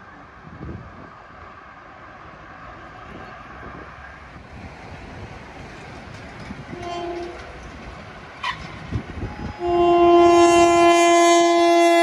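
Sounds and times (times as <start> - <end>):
train rumbling: 0.0 - 12.0
wind buffeting microphone: 0.3 - 1.6, 2.7 - 12.0
train horn: 6.7 - 7.4, 8.4 - 12.0.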